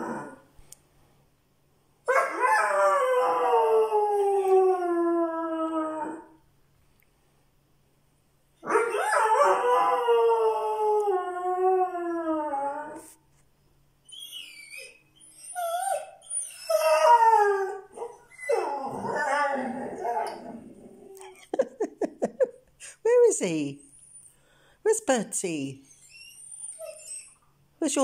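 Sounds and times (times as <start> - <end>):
dog howling: 0.0 - 0.5, 2.1 - 6.4, 8.6 - 13.1, 14.2 - 21.2
dog whining: 0.0 - 0.5, 8.6 - 13.1, 14.0 - 21.5, 25.9 - 27.5.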